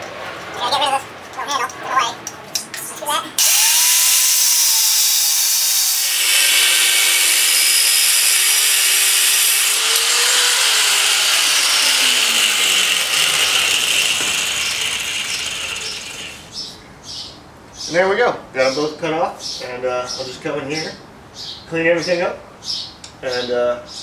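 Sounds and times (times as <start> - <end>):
grinder disc winding down: 3.4 - 16.5
angle grinder cutting metal: 3.4 - 16.6.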